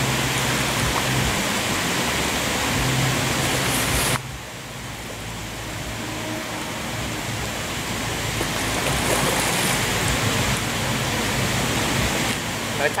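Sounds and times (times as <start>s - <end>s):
steady rushing noise: 0.0s - 13.0s
fish splashing at water surface: 8.3s - 10.6s.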